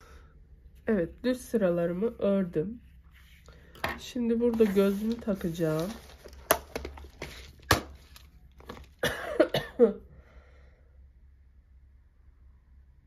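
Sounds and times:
plastic box clicks and knocks: 6.2 - 9.0.

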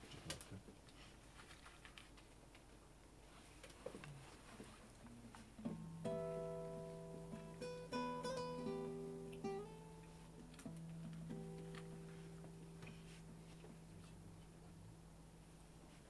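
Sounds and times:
acoustic guitar plucked: 5.6 - 14.1.

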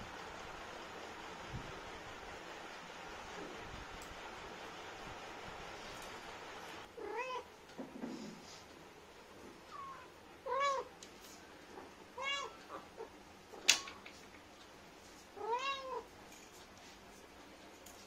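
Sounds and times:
cat meowing: 7.0 - 7.5, 9.7 - 10.9, 12.1 - 13.1, 15.4 - 16.1.

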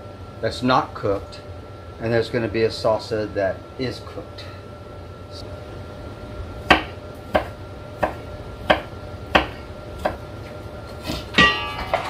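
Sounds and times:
knife chopping on wooden board: 6.7 - 10.2.

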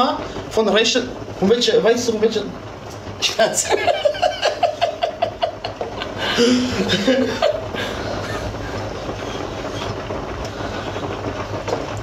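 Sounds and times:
low hum and hiss: 0.0 - 12.0
man laughing: 3.6 - 9.5.

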